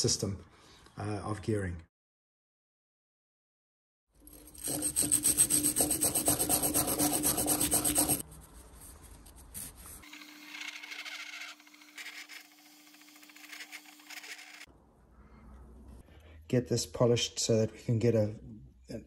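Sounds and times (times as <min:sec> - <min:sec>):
rubbing on metal part: 0:04.3 - 0:10.1.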